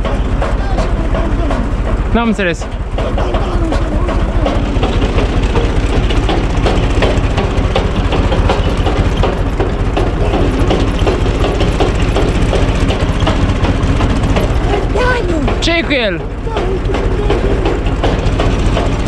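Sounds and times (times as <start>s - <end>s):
log splitter knocking: 0.0s - 19.0s
tractor diesel engine idling: 0.0s - 19.0s.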